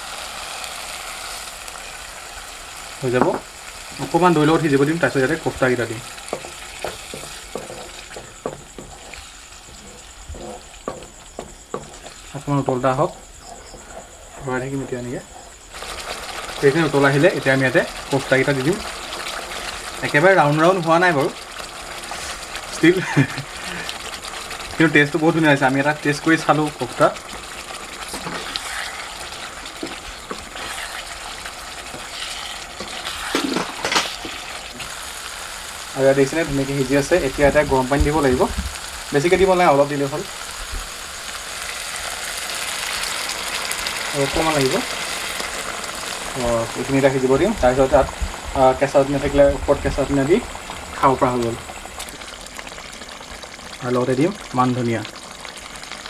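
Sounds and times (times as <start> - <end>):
gravy sizzling: 0.0 - 56.0
spatula scraping through gravy: 4.4 - 12.4, 13.0 - 16.4, 26.4 - 34.9
spatula knocking against pan: 6.3 - 9.0, 10.3 - 12.0.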